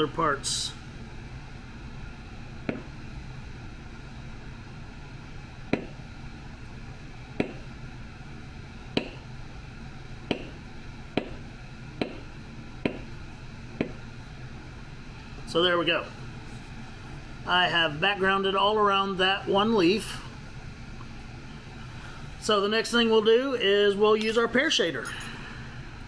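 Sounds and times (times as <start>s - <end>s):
mallet tapping leather stamp: 2.6s - 3.0s, 5.7s - 6.0s, 7.4s - 7.7s, 9.0s - 9.3s, 10.3s - 10.6s, 11.2s - 11.4s, 12.0s - 13.1s, 13.8s - 14.0s.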